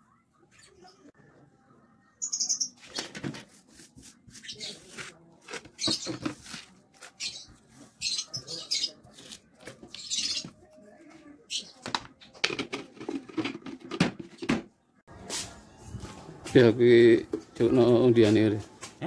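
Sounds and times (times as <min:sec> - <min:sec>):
paper crinkling and rustling: 0:02.9 - 0:07.2.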